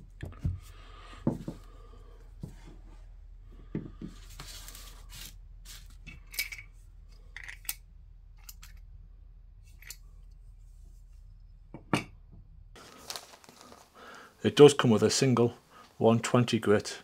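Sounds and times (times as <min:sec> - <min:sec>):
paper rustling: 0:12.8 - 0:14.2.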